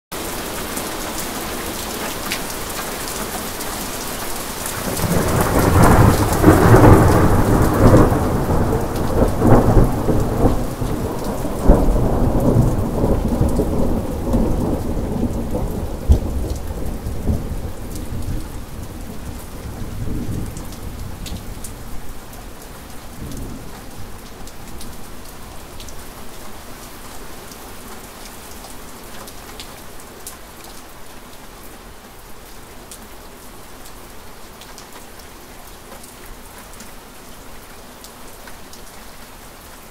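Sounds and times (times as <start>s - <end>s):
heavy rain falling: 0.1s - 39.9s
thunder rumbling and cracking: 4.7s - 21.6s.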